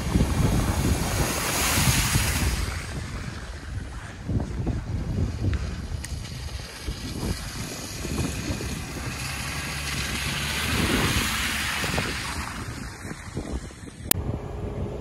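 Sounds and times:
tyres on mud: 0.0s - 14.2s
wind rumble on microphone: 0.0s - 15.0s
vehicle engine passing: 6.6s - 13.4s.

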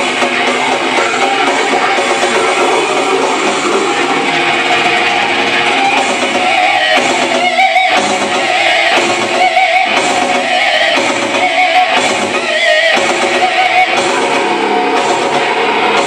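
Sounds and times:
electric guitar riff: 0.0s - 16.0s
live band playing: 0.0s - 16.0s.

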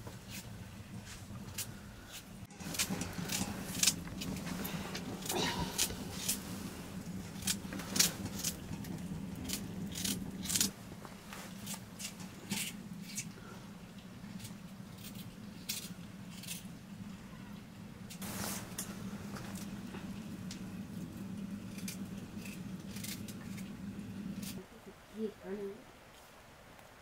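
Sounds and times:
low steady hum: 0.0s - 27.0s
knife slicing radish: 9.5s - 10.7s.

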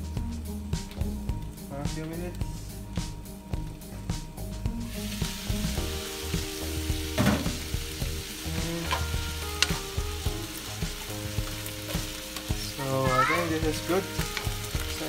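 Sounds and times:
vegetables sizzling in a skillet: 4.9s - 15.0s.

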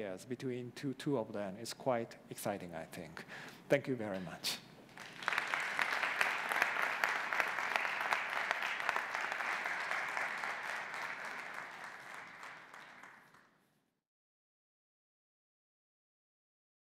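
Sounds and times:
audience applauding: 4.9s - 13.5s.

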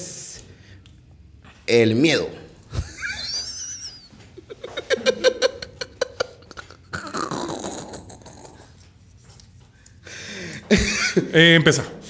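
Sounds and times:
man making drawn-out vocal sound: 6.5s - 8.7s.

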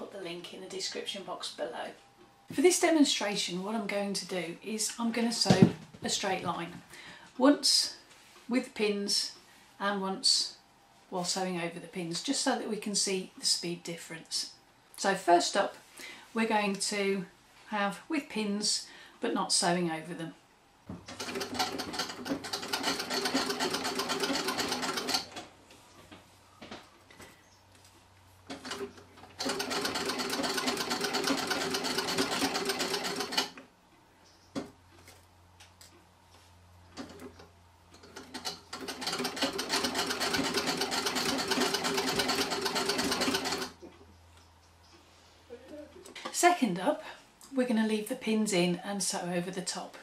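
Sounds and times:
sewing machine clattering: 21.1s - 25.4s, 28.5s - 33.6s, 38.0s - 43.8s.

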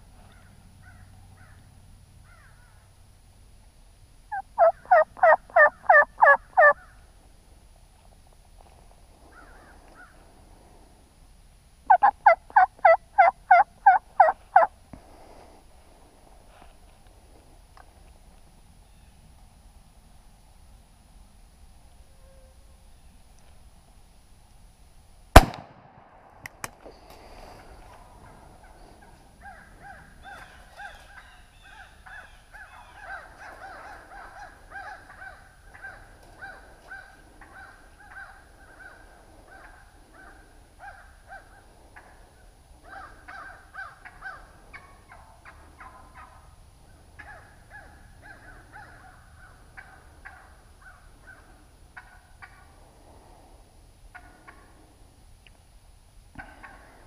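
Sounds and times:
wild turkeys calling: 4.3s - 7.0s, 11.9s - 14.7s, 27.5s - 52.8s, 54.1s - 54.8s, 56.4s - 57.0s.

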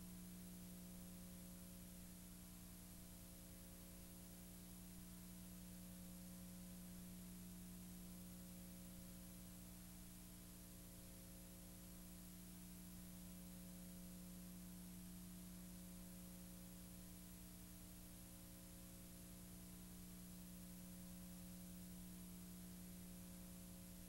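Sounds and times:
faint electrical hum with hiss: 0.0s - 24.0s.

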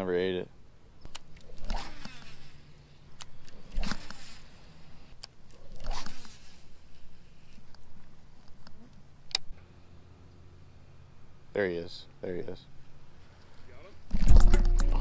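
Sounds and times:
fishing rod clicks: 1.0s - 2.5s
fishing reel whirring: 1.4s - 2.6s.

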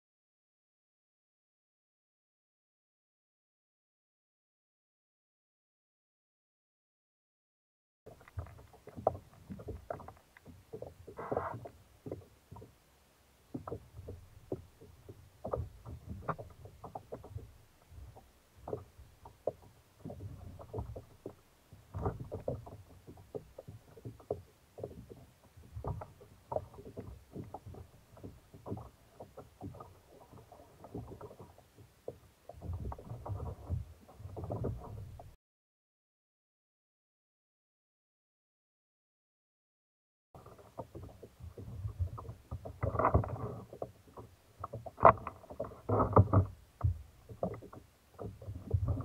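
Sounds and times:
water sloshing: 8.1s - 35.4s, 40.4s - 49.0s
gear knocking on plastic hull: 13.5s - 35.4s, 40.4s - 49.0s.

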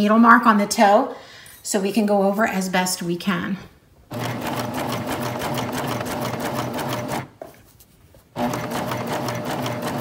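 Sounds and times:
sewing machine stitching: 4.1s - 7.3s, 8.4s - 10.0s.

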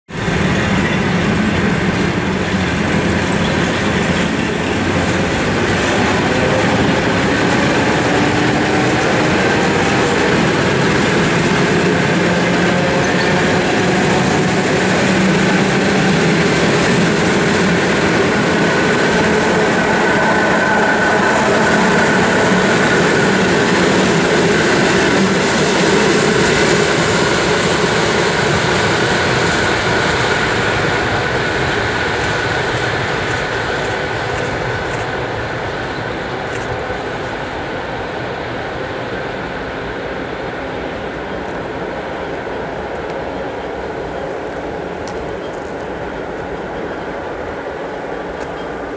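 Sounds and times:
wheels clattering on rails: 0.1s - 37.8s.

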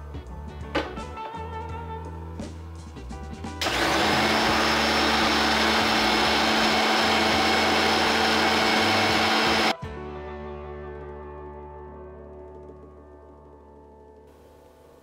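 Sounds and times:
mixer grinder running: 3.6s - 9.8s.

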